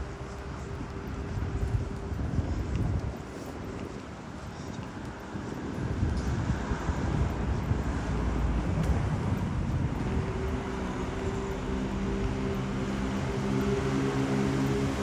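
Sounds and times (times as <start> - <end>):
street traffic rumble: 0.0 - 15.0
vehicle engine droning: 5.4 - 15.0.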